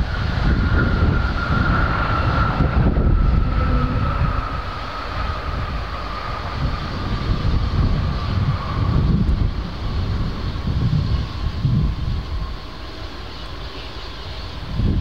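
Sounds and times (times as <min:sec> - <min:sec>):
deep rumble: 0:00.0 - 0:15.0
jet engines whining: 0:00.0 - 0:15.0.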